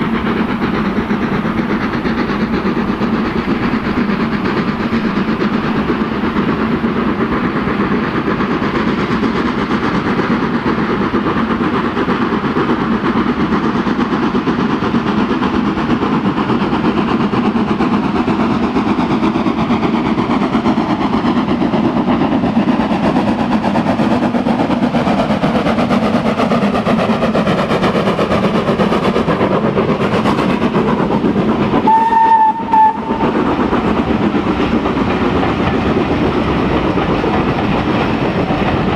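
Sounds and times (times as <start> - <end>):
steam locomotive working: 0.0 - 38.9
steam whistle blast: 31.8 - 33.3.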